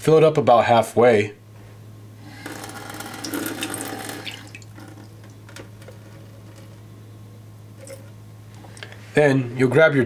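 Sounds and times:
faucet water splashing into sink: 3.0s - 5.1s.

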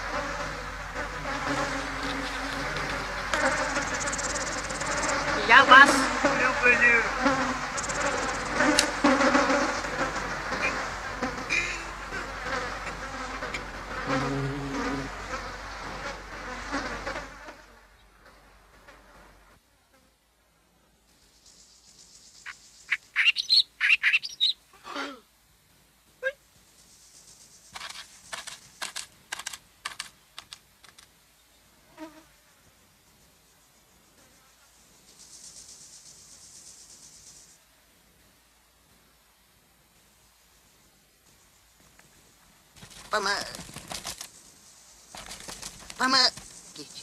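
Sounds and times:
cartoon insects buzzing and chirping: 0.0s - 17.8s, 21.4s - 24.6s, 33.5s - 37.6s, 42.8s - 47.0s
low drawn-out buzz: 0.0s - 19.6s
quick dry scratchy clicks: 27.7s - 31.1s, 42.8s - 44.4s.

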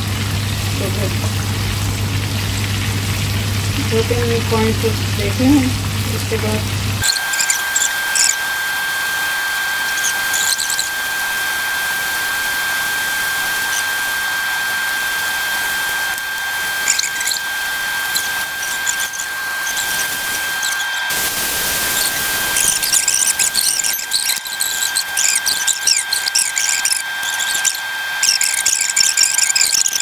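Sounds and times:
chicken deep-frying in oil: 0.0s - 30.0s
high-pitched whine: 7.0s - 30.0s.

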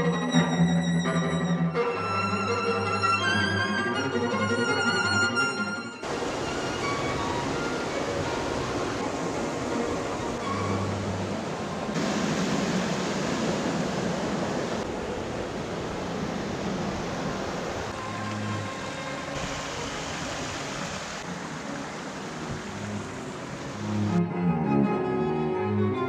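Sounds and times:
cello playing: 0.0s - 11.9s, 17.9s - 19.4s, 21.3s - 26.0s
creek water rushing: 6.0s - 24.8s.

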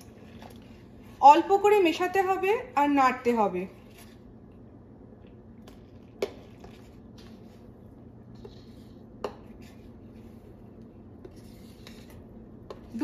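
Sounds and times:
spoon stirring in a metal pot: 5.7s - 13.0s.

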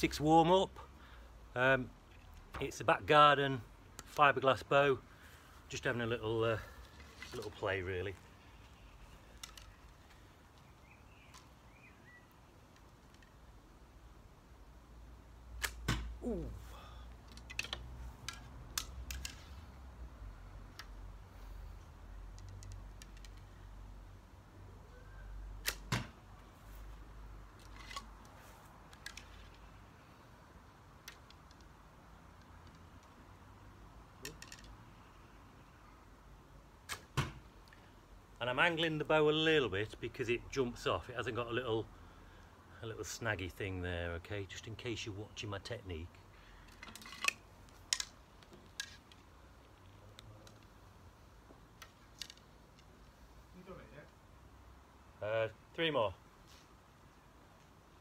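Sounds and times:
rustle: 0.0s - 58.0s
arrow handling clicks: 9.2s - 10.7s, 15.6s - 16.2s, 17.2s - 19.6s, 20.7s - 21.0s, 25.6s - 26.1s, 36.8s - 37.8s, 46.6s - 50.7s
bowstring release cracks: 15.6s - 16.2s, 25.6s - 26.1s.

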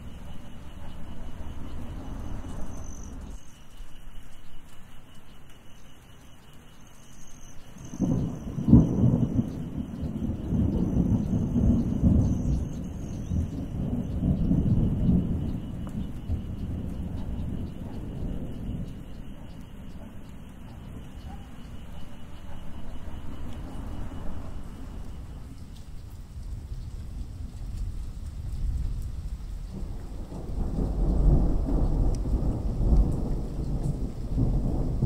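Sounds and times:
thunder rumbling: 0.0s - 3.7s, 7.3s - 35.0s
falling rain: 0.0s - 35.0s
sharp thunder crack: 7.8s - 21.6s, 26.8s - 35.0s
thunderclap: 7.8s - 35.0s.

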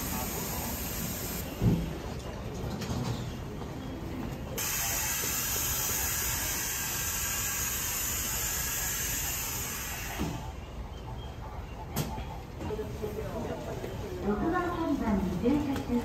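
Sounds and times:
low rumble of standing train: 0.0s - 16.0s
compressed air hissing: 4.6s - 10.6s.

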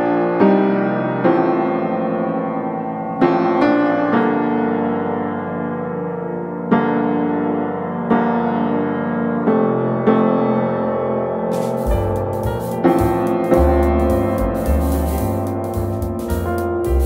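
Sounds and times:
slow keyboard chords: 11.5s - 17.0s.

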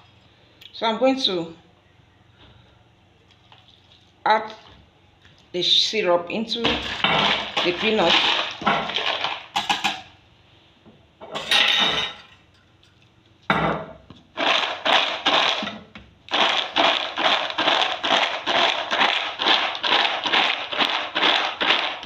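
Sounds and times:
nuts clattering in bowl: 6.8s - 10.0s, 14.4s - 15.7s, 16.3s - 22.0s
rhythmic stirring strokes: 6.9s - 9.7s, 14.4s - 15.7s, 16.3s - 22.0s.

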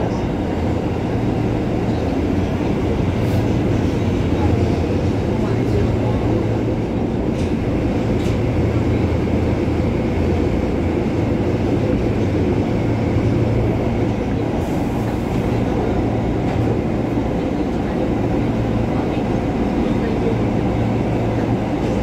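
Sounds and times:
subway car rumbling in tunnel: 0.0s - 22.0s.

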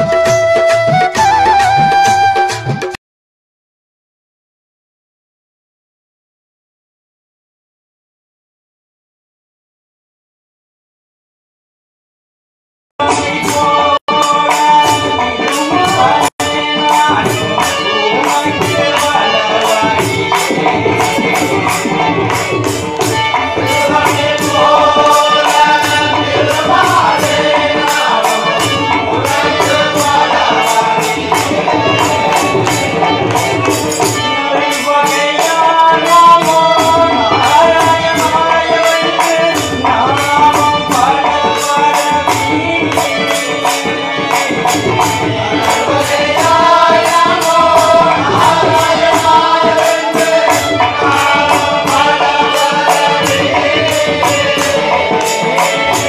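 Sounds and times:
drum: 0.0s - 3.0s, 13.0s - 56.0s
jingling hand percussion: 0.0s - 3.0s, 13.0s - 56.0s
men singing devotional song: 13.0s - 56.0s.

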